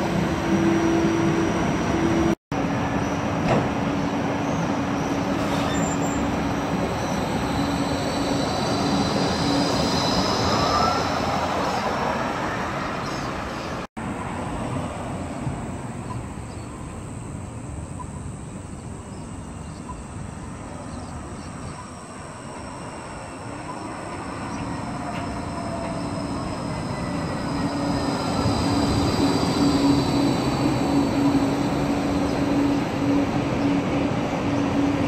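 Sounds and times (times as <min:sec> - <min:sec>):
road traffic: 0:00.0 - 0:35.0
tram motors humming and whining: 0:00.0 - 0:35.0.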